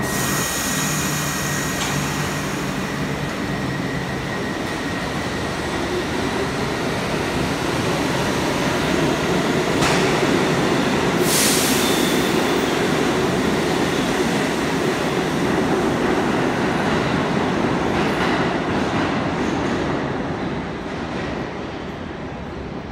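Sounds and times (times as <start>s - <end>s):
high hiss: 0.0s - 4.0s, 11.2s - 12.8s
subway train rumbling on track: 0.0s - 22.9s.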